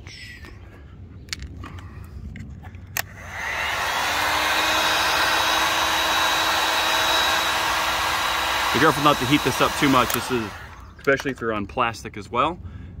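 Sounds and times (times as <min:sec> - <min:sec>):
heat gun fan blowing air: 0:03.0 - 0:11.3
heat gun switch click: 0:09.0 - 0:10.8.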